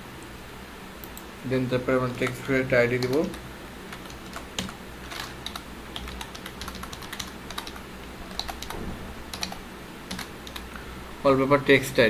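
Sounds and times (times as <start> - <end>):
computer keyboard typing: 2.0 - 10.8.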